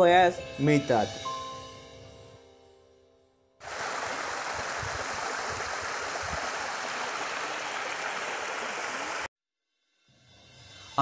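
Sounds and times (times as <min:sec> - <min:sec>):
waterfall splashing over rocks: 0:03.6 - 0:09.3.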